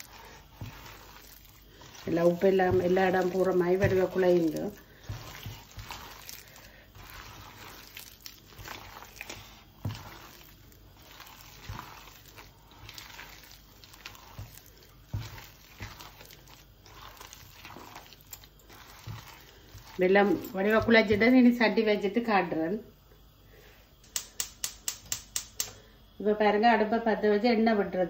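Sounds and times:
wet squishing and crackling: 0.0s - 21.4s
batter being mixed by hand: 0.0s - 22.6s.

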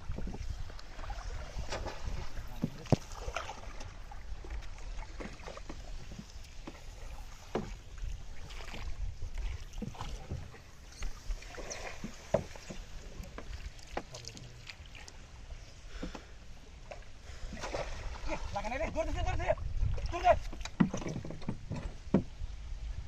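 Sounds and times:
wind rumble on microphone: 0.0s - 12.2s, 18.0s - 23.0s
pole splashing in water: 0.1s - 15.2s, 16.9s - 19.1s.

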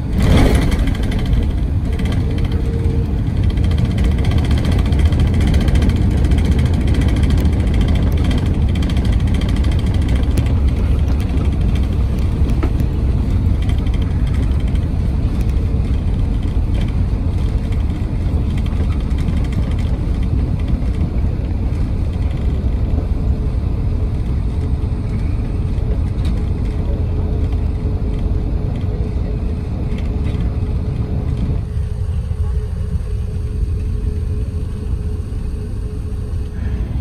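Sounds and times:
aircraft cabin rumble on landing: 0.0s - 37.0s.

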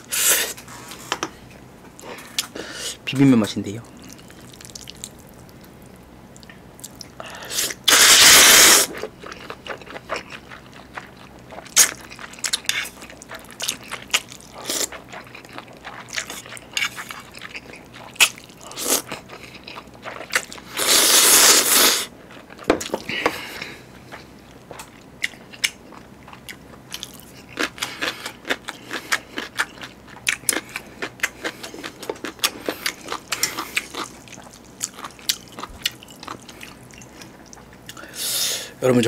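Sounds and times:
wet chewing smacks: 4.0s - 5.7s
person slurping noodles: 7.5s - 9.0s, 20.7s - 22.1s.

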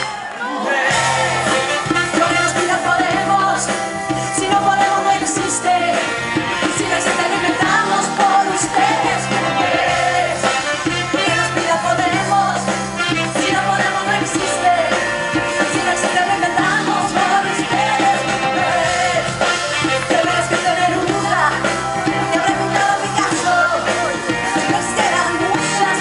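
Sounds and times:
bass guitar: 0.9s - 26.0s
live pop-rock band playing: 0.9s - 26.0s
woman singing into a microphone: 2.2s - 9.7s, 11.2s - 15.0s, 15.6s - 18.3s, 20.1s - 26.0s.

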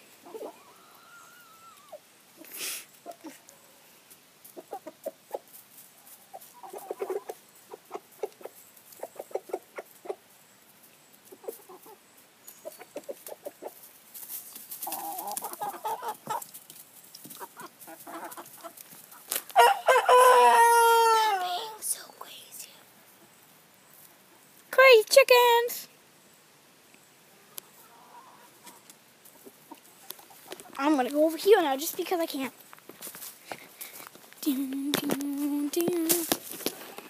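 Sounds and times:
chickens clucking: 0.0s - 21.9s, 23.0s - 24.7s, 26.9s - 37.0s
rooster crowing: 19.6s - 21.4s.

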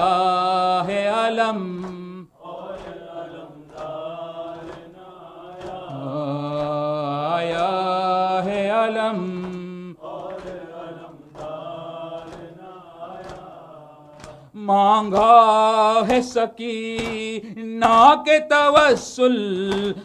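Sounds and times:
chest-beating slaps: 1.8s - 2.1s, 3.7s - 6.8s, 9.4s - 12.5s, 13.2s - 14.4s, 17.0s - 17.3s
man chanting: 5.8s - 10.0s.

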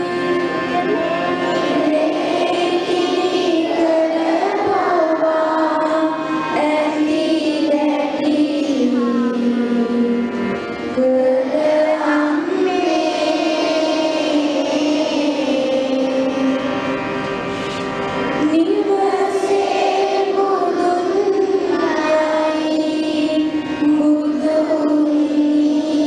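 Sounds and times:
voices singing together: 0.0s - 10.2s, 11.0s - 16.8s, 18.4s - 26.0s.

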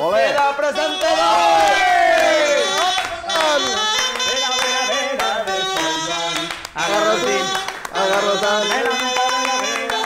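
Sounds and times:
percussion keeping the beat: 0.0s - 10.0s
person singing: 0.0s - 10.0s.

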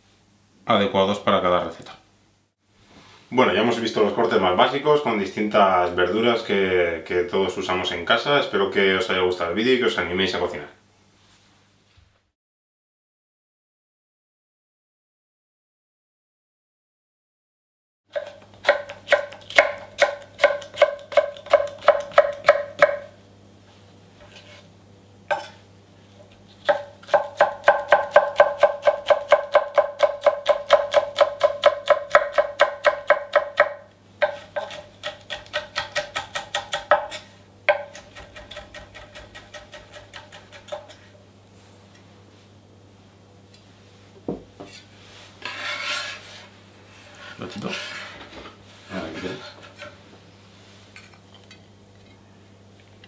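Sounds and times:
knife chopping on wooden board: 18.1s - 23.1s, 26.6s - 41.0s.

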